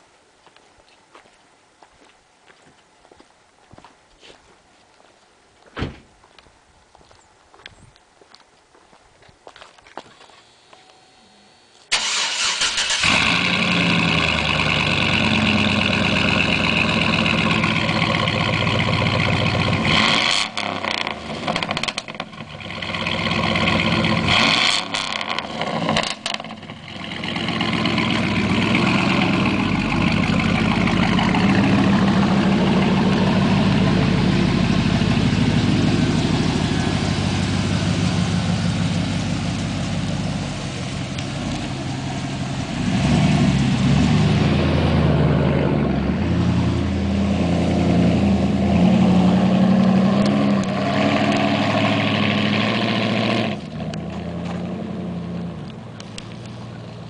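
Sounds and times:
truck driving: 10.1s - 57.0s
truck engine starting and idling: 11.9s - 57.0s.

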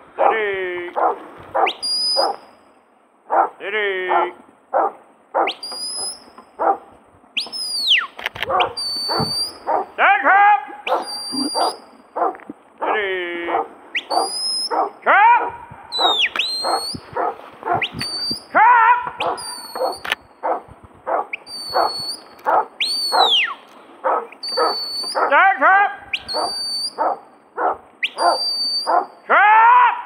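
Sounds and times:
dog barking: 0.2s - 0.4s, 1.0s - 2.4s, 3.3s - 5.6s, 6.6s - 6.9s, 8.4s - 10.0s, 10.9s - 18.0s, 18.9s - 23.4s, 24.0s - 25.4s, 26.3s - 29.1s
shepherd's whistle blasts: 1.6s - 2.4s, 5.4s - 6.3s, 7.4s - 9.8s, 10.9s - 11.8s, 13.9s - 14.8s, 15.9s - 17.2s, 17.8s - 18.6s, 19.2s - 20.2s, 21.3s - 23.6s, 24.4s - 25.3s, 26.1s - 27.2s, 28.0s - 29.2s.

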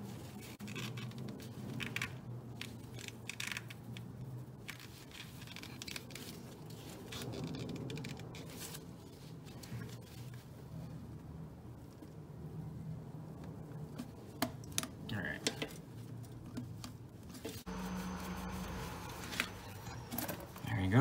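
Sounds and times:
steady low hum: 17.6s - 21.0s.

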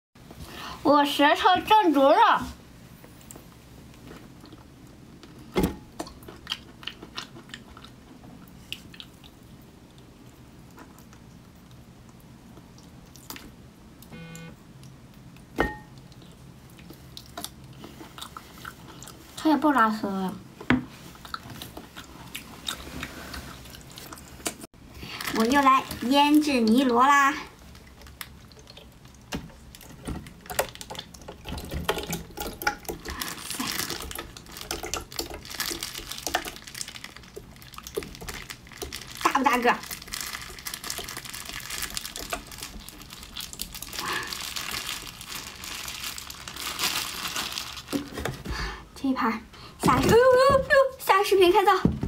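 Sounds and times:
snail eating clicks and wet smacking: 6.0s - 14.1s, 14.8s - 19.4s, 27.6s - 39.2s
short pitched tone: 14.1s - 14.6s.

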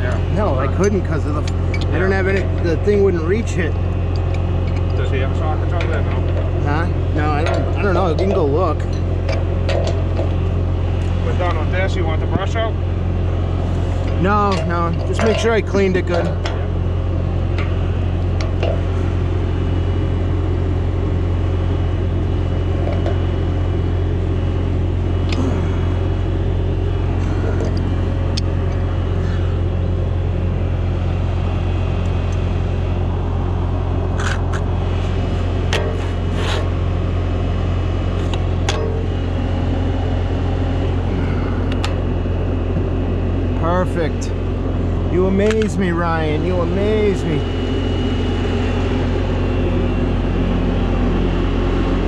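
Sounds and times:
loader engine idling: 0.0s - 52.0s
sharp clicks and knocks: 7.4s - 10.4s.

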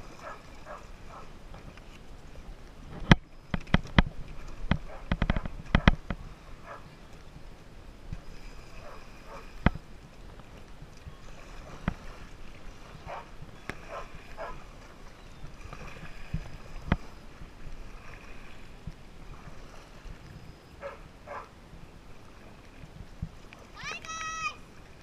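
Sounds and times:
paddle splashing in water: 0.0s - 25.0s
water running along hull: 0.0s - 25.0s.

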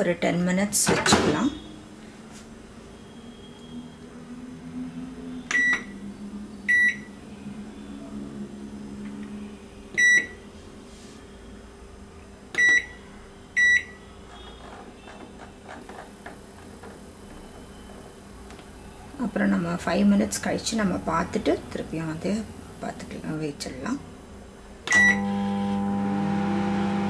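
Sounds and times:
low steady hum: 0.0s - 27.0s
microwave keypad beeps: 5.5s - 5.9s, 10.0s - 10.4s, 12.6s - 13.0s, 13.6s - 14.0s, 24.9s - 25.2s.

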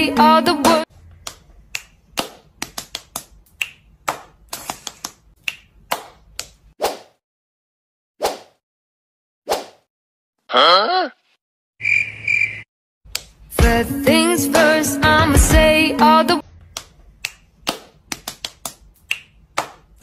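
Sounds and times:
sharp snaps: 1.2s - 6.6s, 13.1s - 13.4s, 16.7s - 20.0s.

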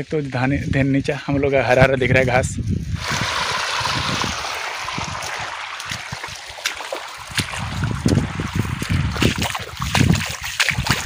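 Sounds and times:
water gushing from pipe: 3.0s - 11.0s.

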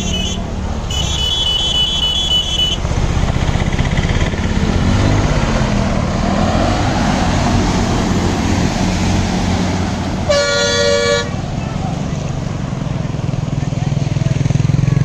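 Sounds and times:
bus engine running: 0.0s - 15.0s
water rushing and splashing: 2.8s - 14.6s.

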